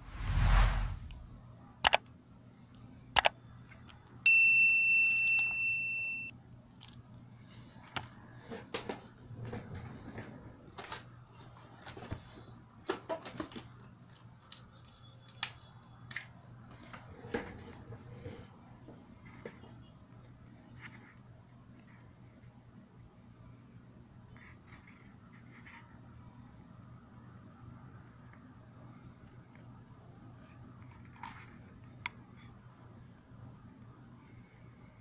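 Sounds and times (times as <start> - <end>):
bright bell ding: 4.3 - 6.3.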